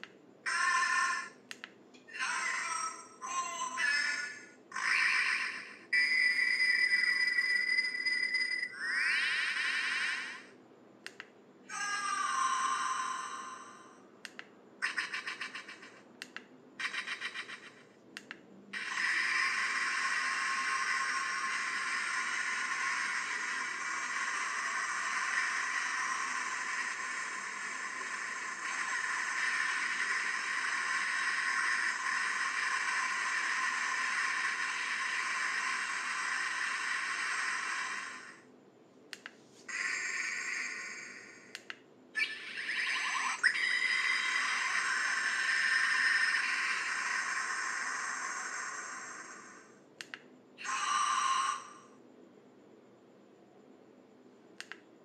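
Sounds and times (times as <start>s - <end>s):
toy hissing sound effect: 0.5s - 1.4s, 3.7s - 10.6s, 11.7s - 13.8s, 14.8s - 16.0s, 16.8s - 17.9s, 18.8s - 38.4s, 39.7s - 41.6s, 42.2s - 49.8s, 50.6s - 51.9s
ringing electronic chime: 6.0s - 9.8s
toy clicks: 14.3s - 38.3s
rapidly pulsing electronic tones: 18.8s - 38.4s, 42.2s - 49.6s.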